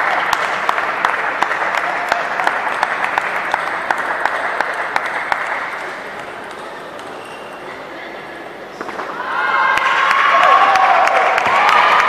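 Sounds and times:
spectators applauding: 0:00.0 - 0:06.1, 0:09.7 - 0:12.0.

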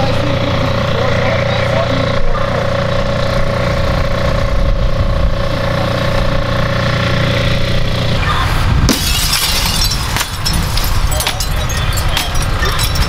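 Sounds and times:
engine idling: 0:00.0 - 0:08.2.

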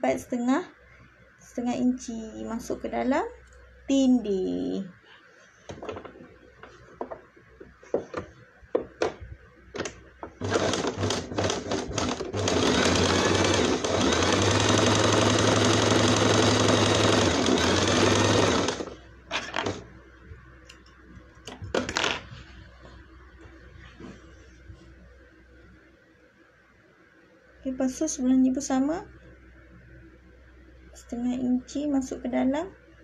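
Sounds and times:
sewing machine stitching: 0:10.4 - 0:19.8.

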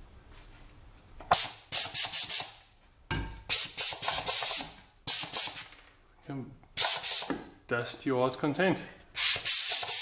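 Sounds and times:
compressed air blasts hissing: 0:01.3 - 0:02.6, 0:03.5 - 0:05.7, 0:06.8 - 0:07.5, 0:09.2 - 0:10.0.

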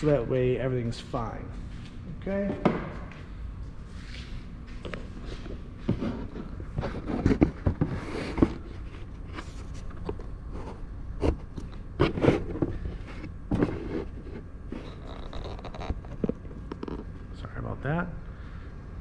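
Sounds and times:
low room hum: 0:00.0 - 0:19.0
handling knocks and scrapes: 0:03.9 - 0:17.1.

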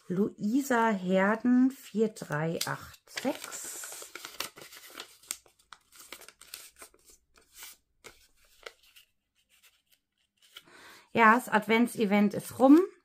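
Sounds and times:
paper crinkling and rustling: 0:02.0 - 0:10.6.

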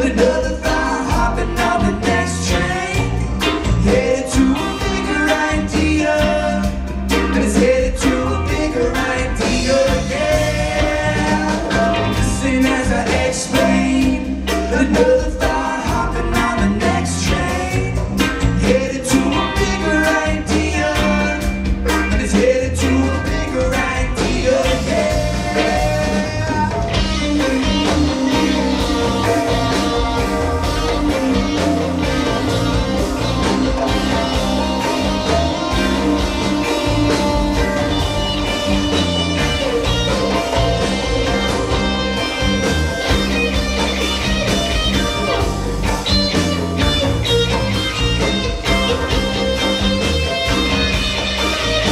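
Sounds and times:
person singing: 0:00.0 - 0:43.4
live rock band playing: 0:00.0 - 0:51.9
held electric guitar notes: 0:25.4 - 0:51.9.

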